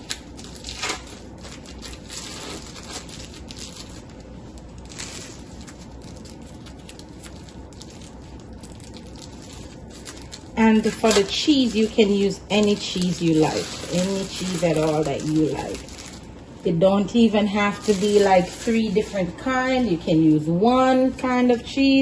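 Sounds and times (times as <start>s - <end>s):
plastic wrappers crinkling: 0.0s - 20.3s.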